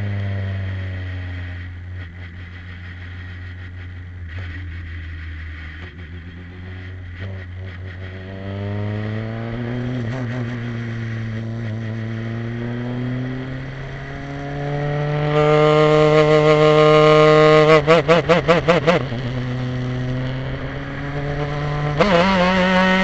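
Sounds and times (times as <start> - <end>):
race car engine revving: 5.6 - 23.0.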